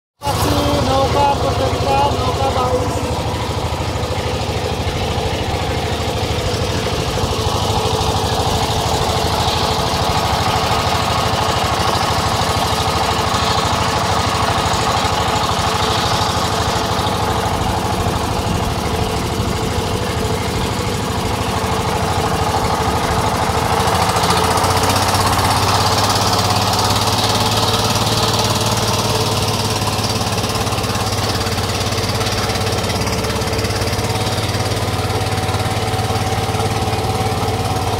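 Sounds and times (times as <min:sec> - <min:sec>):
boat engine running: 0:00.2 - 0:37.9.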